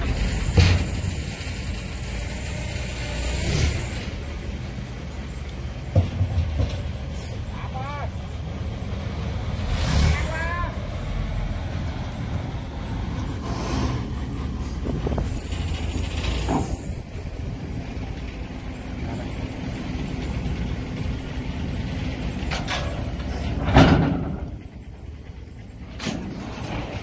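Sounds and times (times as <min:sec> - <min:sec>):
engine idling: 0:00.0 - 0:27.0
metal ramp clanking down: 0:15.2 - 0:17.1, 0:22.4 - 0:24.8, 0:25.8 - 0:27.0.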